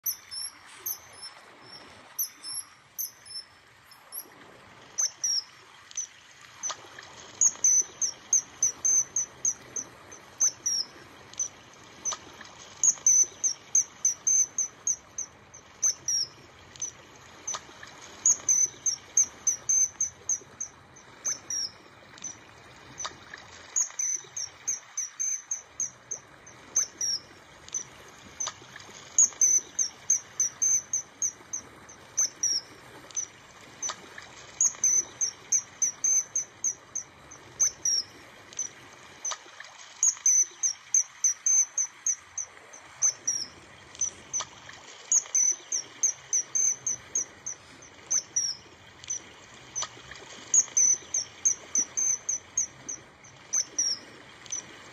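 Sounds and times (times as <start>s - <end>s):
high-pitched chirps: 0.0s - 4.2s, 7.4s - 9.6s, 12.8s - 16.9s, 18.3s - 22.4s, 23.8s - 26.2s.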